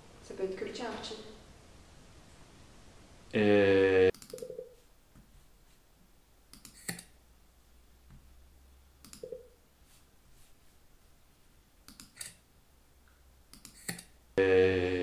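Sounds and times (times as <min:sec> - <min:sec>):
computer clicks: 0:04.1 - 0:04.7, 0:06.5 - 0:07.2, 0:09.0 - 0:09.6, 0:11.9 - 0:12.4, 0:13.5 - 0:14.1
loud buzzing tone: 0:14.4 - 0:15.0.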